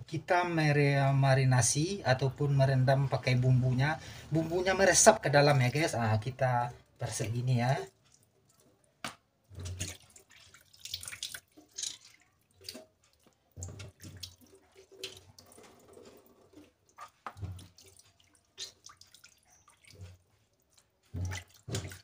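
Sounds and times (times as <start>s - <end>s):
water splashing into a steel sink: 9.4s - 22.0s.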